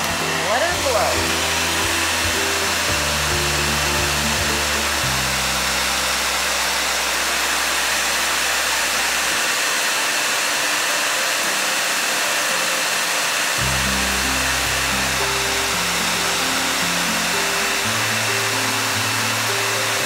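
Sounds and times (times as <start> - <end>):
background music: 0.0 - 9.4, 13.5 - 20.0
hair dryer blowing: 0.0 - 20.0.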